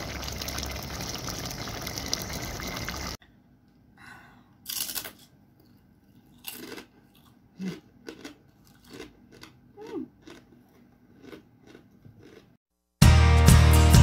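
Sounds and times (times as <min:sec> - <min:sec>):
pot simmering bubbling hiss: 0:00.0 - 0:03.2
crisp snack crunching: 0:04.7 - 0:09.6, 0:10.2 - 0:12.4.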